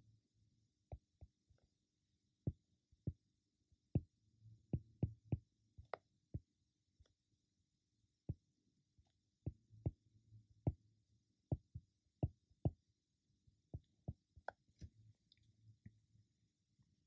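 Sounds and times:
stylus tapping on tablet: 0.9s - 1.3s, 4.8s - 6.5s, 11.5s - 12.8s.

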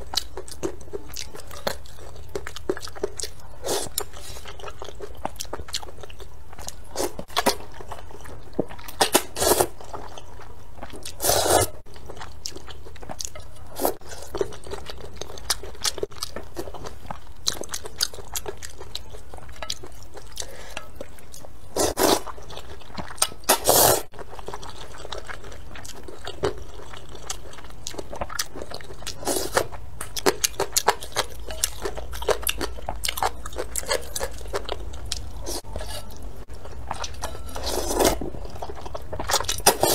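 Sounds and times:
slurping noodles: 11.2s - 11.8s, 23.5s - 24.1s.

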